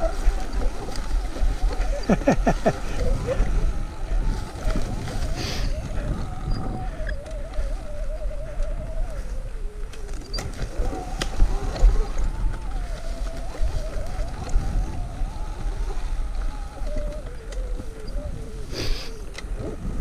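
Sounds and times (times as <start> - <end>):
low rumble over rough ground: 0.0 - 20.0
electric motor whining: 9.8 - 19.9.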